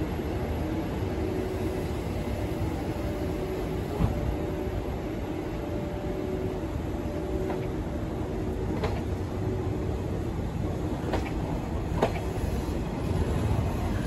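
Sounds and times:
locomotive hum: 0.0 - 14.0
train wheels rumbling on rails: 0.0 - 14.0
wheels clicking over rail joints: 8.7 - 9.2, 11.0 - 12.4.

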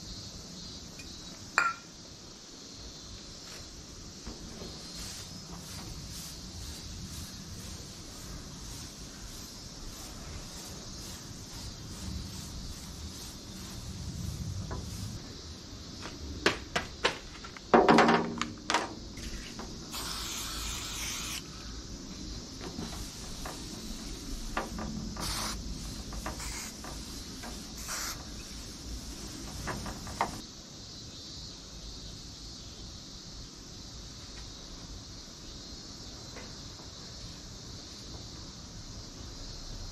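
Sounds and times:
cloth wiping a surface: 4.4 - 15.2, 22.7 - 30.4
aerosol spray can hissing: 4.7 - 15.2, 19.2 - 21.5, 22.7 - 30.4
sharp knocks and clatters: 16.4 - 19.8, 22.6 - 28.4, 29.3 - 30.4.

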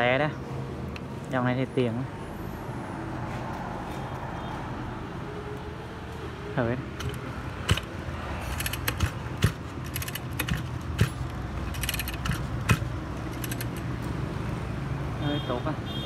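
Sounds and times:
metallic clicks and rattles: 8.5 - 13.9.

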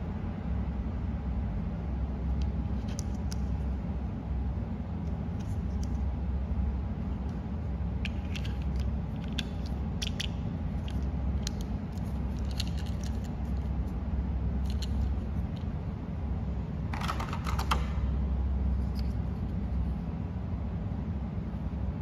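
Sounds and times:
low hum: 0.0 - 22.0
plastic toy pieces clicking: 8.1 - 13.3.

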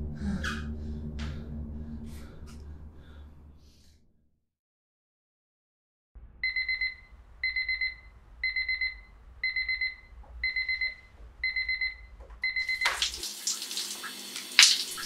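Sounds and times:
alarm clock beeping: 6.4 - 13.0.

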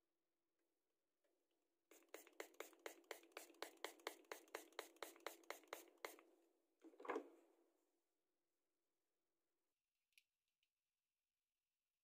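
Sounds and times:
spray bottle spritzes: 1.9 - 6.2.

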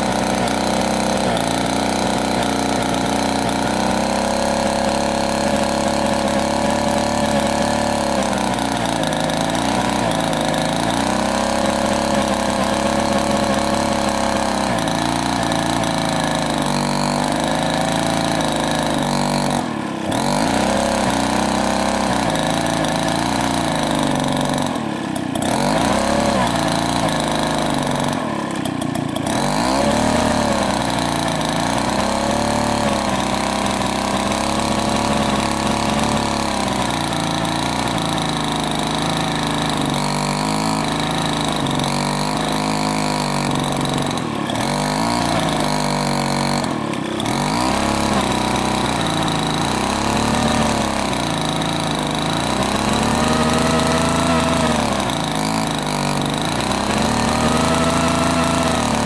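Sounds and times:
chainsaw cutting log: 0.0 - 59.0.

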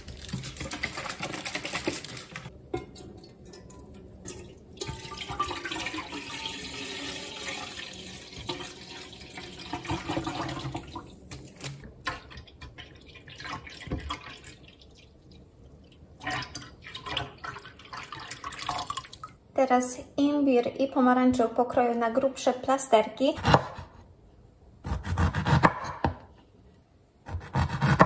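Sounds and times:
juice pouring into pot: 3.2 - 11.1, 16.2 - 19.4.

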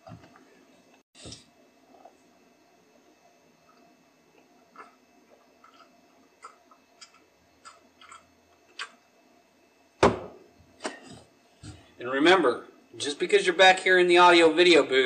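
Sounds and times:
person gulping a drink: 4.4 - 9.0.

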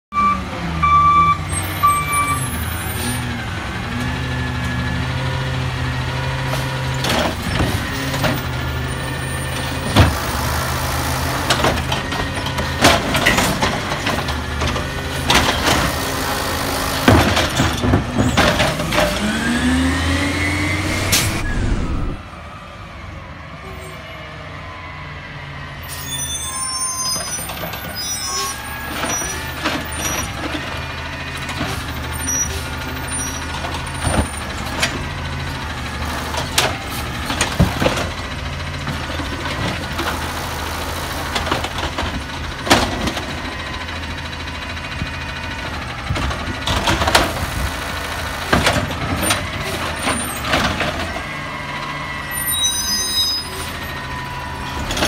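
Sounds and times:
garbage truck engine: 0.1 - 55.0
cart banging against truck: 9.6 - 10.5, 16.9 - 19.4.

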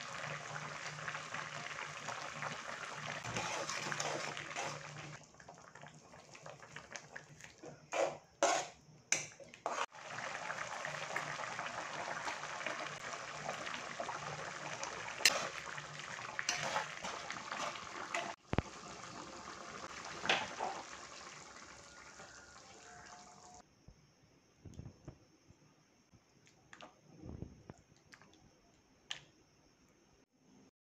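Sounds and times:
sauce sizzling and bubbling: 0.0 - 8.8, 9.5 - 23.6
ladle stirring and scraping: 3.2 - 5.2, 7.4 - 9.9, 15.0 - 18.4.

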